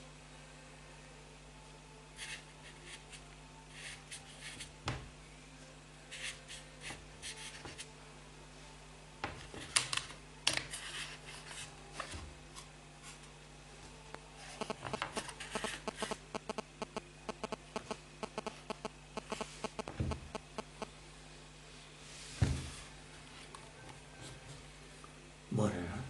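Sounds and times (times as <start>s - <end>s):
faint low hum: 0.0s - 26.0s
fingers tapping on touchscreen: 14.6s - 20.9s.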